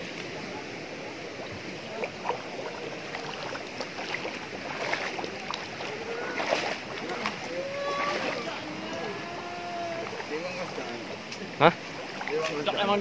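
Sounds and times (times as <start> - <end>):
stream running over rocks: 0.0 - 13.0
small splashes and knocks: 1.4 - 9.0, 9.8 - 12.8.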